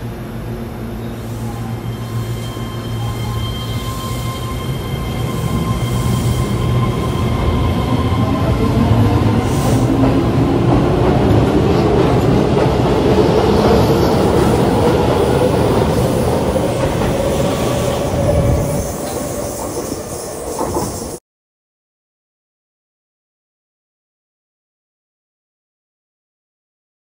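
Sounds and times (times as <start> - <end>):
electric train motors whining: 1.2 - 10.1
steady high tones: 1.2 - 10.1.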